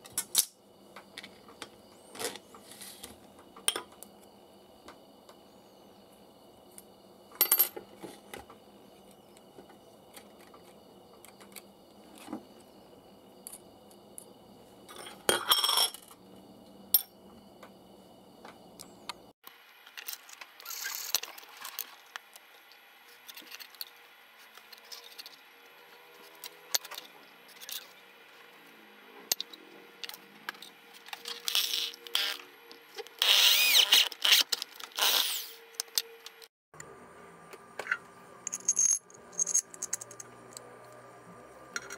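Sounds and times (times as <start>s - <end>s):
objects scraping on tabletop: 2.1s - 3.2s
metal parts clinking on tabletop: 7.4s - 7.8s, 14.9s - 16.2s, 38.5s - 40.3s.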